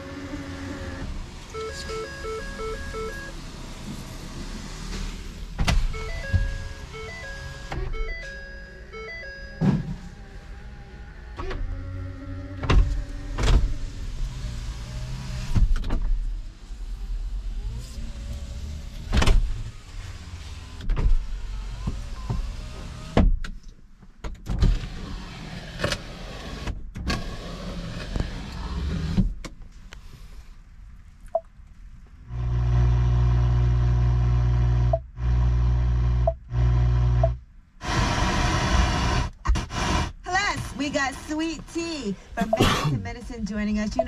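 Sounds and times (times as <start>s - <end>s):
power window motors humming: 0.0s - 16.0s, 32.3s - 40.0s
knocks and clunks: 5.6s - 6.8s, 12.6s - 13.8s.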